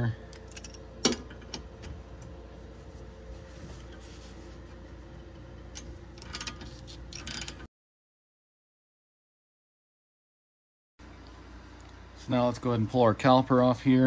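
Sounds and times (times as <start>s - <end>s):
wrenches clinking on metal: 0.3s - 1.6s, 5.7s - 7.7s
ratchet clicking: 5.8s - 7.6s.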